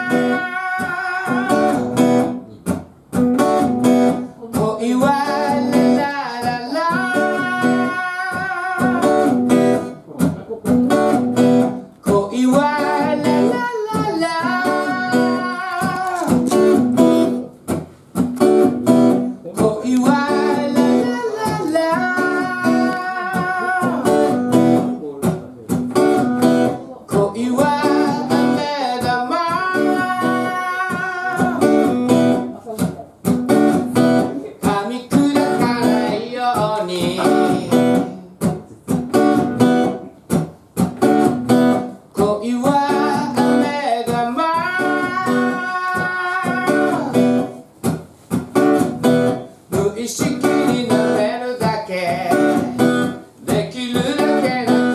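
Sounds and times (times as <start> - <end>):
man singing: 0.0 - 2.4, 4.2 - 11.1, 11.7 - 16.7, 19.3 - 25.6, 26.6 - 32.5, 33.9 - 39.6, 42.1 - 47.6, 49.7 - 54.9
acoustic guitar strumming: 0.0 - 54.9.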